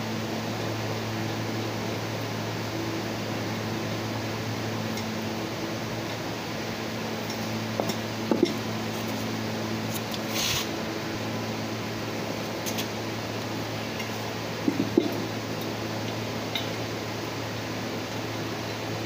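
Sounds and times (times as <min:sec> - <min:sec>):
workshop fan humming: 0:00.0 - 0:19.0
brief hiss: 0:10.3 - 0:10.7.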